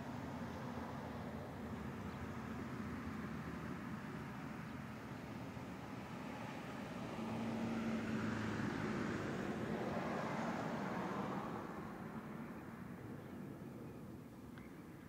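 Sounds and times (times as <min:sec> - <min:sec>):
motor vehicle passing: 0:05.3 - 0:13.3.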